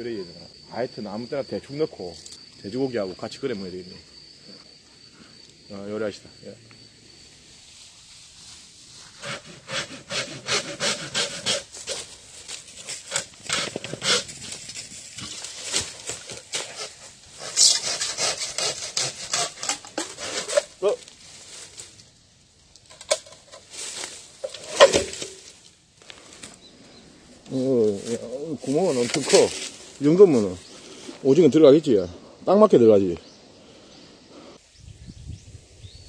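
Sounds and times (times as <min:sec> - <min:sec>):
saw rasping through bamboo: 0:09.0 - 0:12.2, 0:12.8 - 0:14.6, 0:15.7 - 0:20.9.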